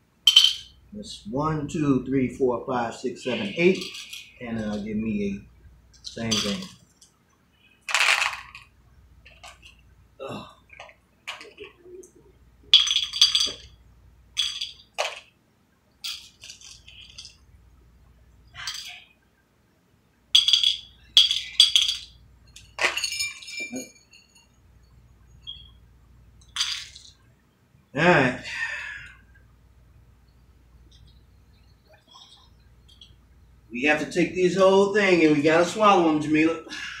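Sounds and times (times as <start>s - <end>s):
metal cups clinking: 0.3s - 0.8s, 3.3s - 4.9s, 6.0s - 6.8s, 12.7s - 13.8s, 14.4s - 15.3s, 16.0s - 17.4s, 18.6s - 19.0s, 20.4s - 24.5s, 26.4s - 27.2s.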